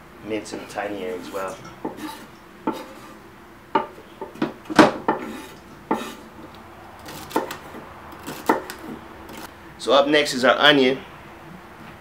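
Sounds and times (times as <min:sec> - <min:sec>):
knife chopping on wooden board: 0:05.9 - 0:06.2, 0:07.1 - 0:09.5.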